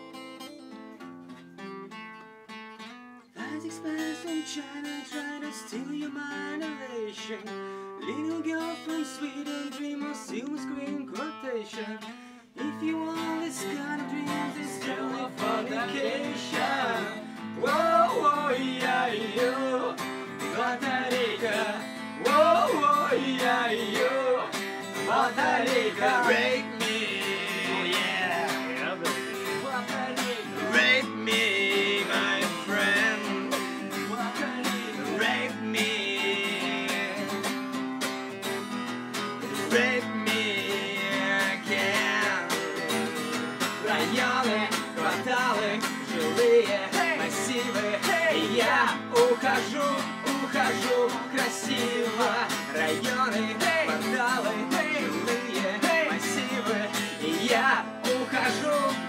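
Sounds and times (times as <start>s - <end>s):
acoustic guitar strumming: 0.0s - 59.0s
lap guitar playing: 12.6s - 59.0s.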